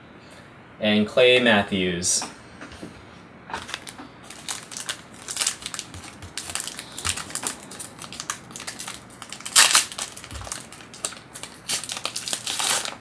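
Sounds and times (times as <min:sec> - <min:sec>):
foil wrapper crinkling and tearing: 0:03.6 - 0:13.0.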